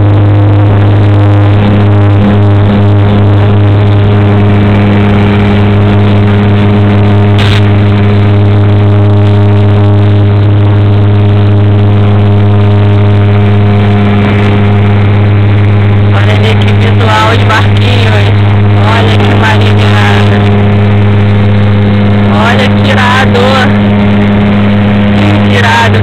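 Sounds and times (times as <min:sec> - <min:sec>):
propeller plane engine drone: 0:00.0 - 0:26.0.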